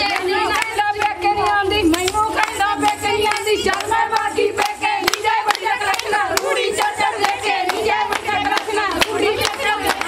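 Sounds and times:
rhythmic hand clapping: 0:00.0 - 0:10.0
women singing together: 0:00.0 - 0:10.0.

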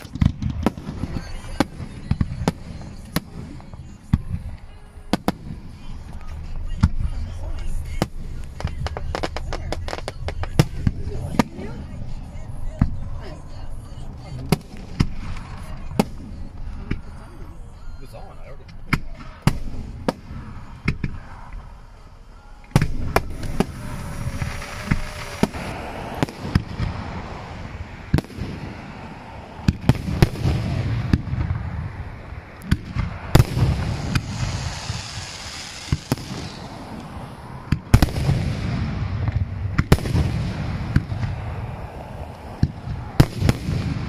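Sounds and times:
continuous fireworks rumble: 0:00.0 - 0:44.0
fireworks bursting with sharp bangs: 0:00.0 - 0:44.0.

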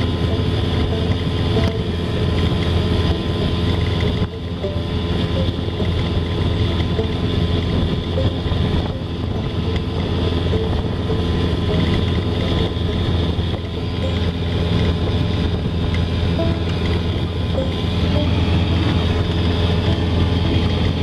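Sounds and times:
outboard motor running: 0:00.0 - 0:21.0
wake rushing: 0:00.0 - 0:21.0
wind buffeting microphone: 0:00.0 - 0:21.0.

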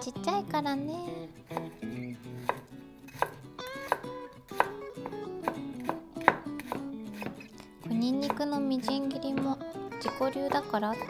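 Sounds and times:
knife tapping on cutting board: 0:03.2 - 0:07.4.

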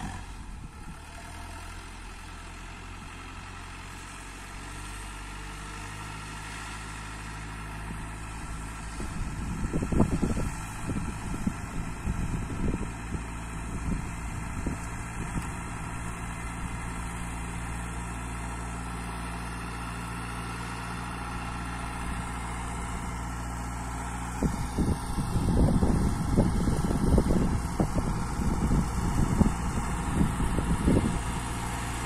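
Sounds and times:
tractor engine running under load: 0:00.0 - 0:32.0
uneven low rumbling: 0:21.8 - 0:32.0.

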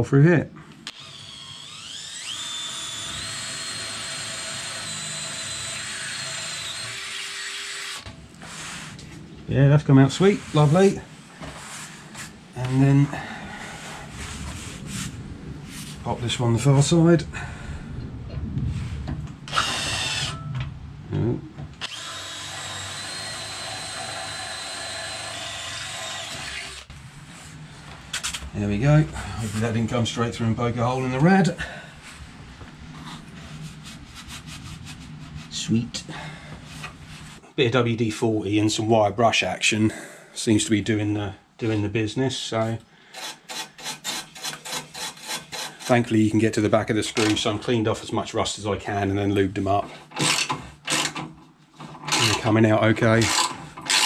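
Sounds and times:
drill motor whine: 0:00.8 - 0:08.1, 0:19.5 - 0:20.6, 0:21.8 - 0:26.9, 0:52.1 - 0:52.4.

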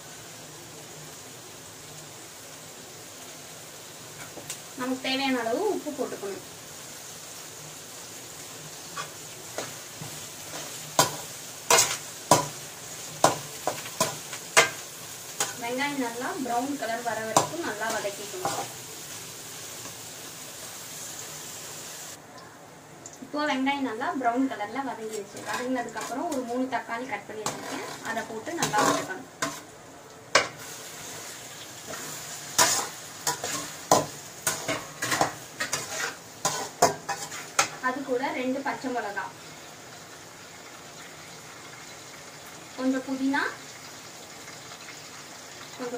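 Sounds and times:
onions sizzling in oil: 0:00.0 - 0:45.9
metal spatula scraping a pan: 0:08.9 - 0:16.0, 0:17.3 - 0:18.8, 0:25.0 - 0:26.6, 0:27.4 - 0:29.7, 0:30.4 - 0:37.8.

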